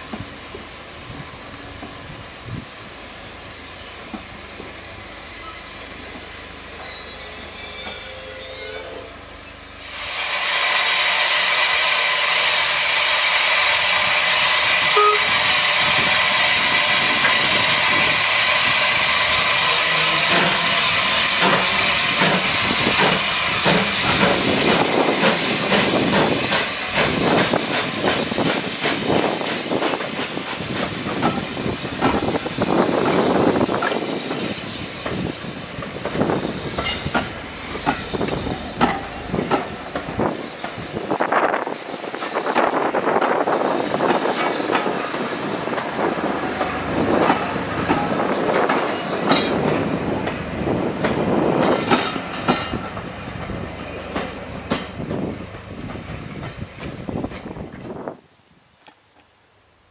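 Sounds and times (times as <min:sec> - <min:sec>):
steam locomotive hissing: 0:00.0 - 0:58.3
train wheels knocking: 0:20.2 - 0:41.2, 0:42.2 - 0:57.6.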